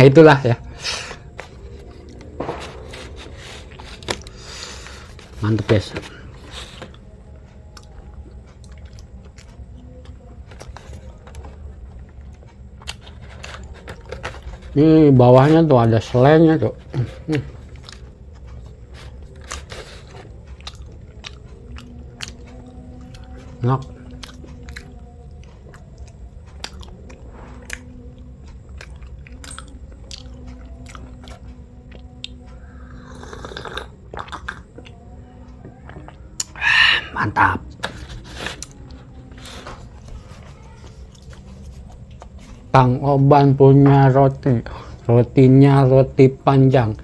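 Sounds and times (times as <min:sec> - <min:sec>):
person chewing bread: 0:01.0 - 0:14.8, 0:16.7 - 0:42.8
low rumble: 0:01.4 - 0:05.2
wet mouth clicks: 0:33.2 - 0:35.0.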